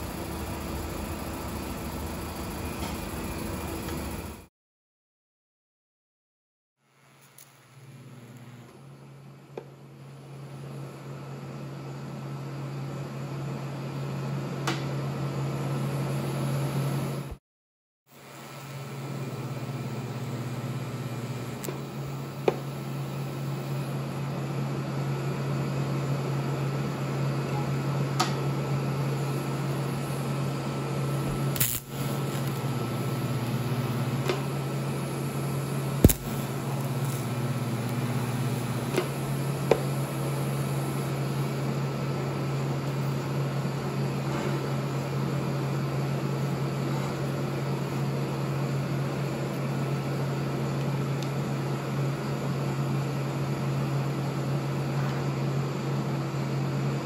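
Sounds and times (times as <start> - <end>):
welding arc humming: 0.0 - 4.4, 6.8 - 9.2, 18.1 - 25.6, 28.2 - 43.8.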